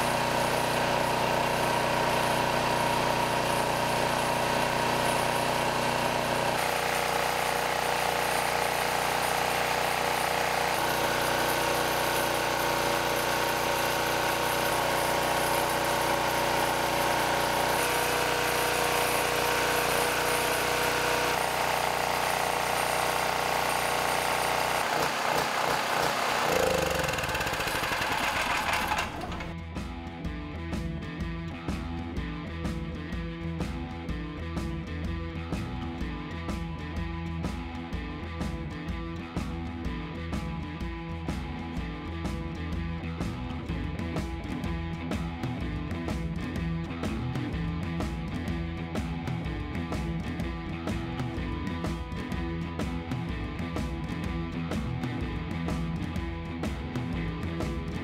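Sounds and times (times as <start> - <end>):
generator engine running: 0.0 - 29.6.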